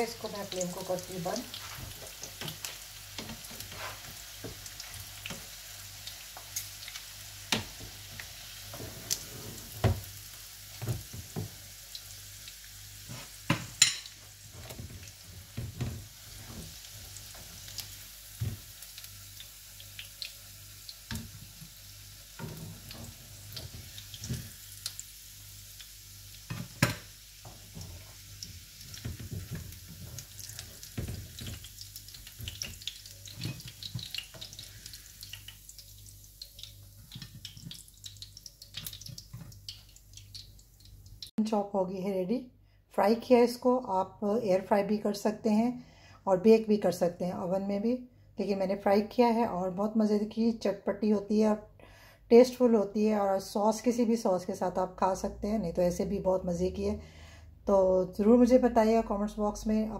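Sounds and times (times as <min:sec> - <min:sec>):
oil sizzling in frying pan: 0:00.0 - 0:41.4
tongs tapping and scraping pan: 0:01.5 - 0:10.0, 0:13.1 - 0:21.7, 0:22.4 - 0:25.0, 0:26.5 - 0:35.6, 0:36.4 - 0:41.3.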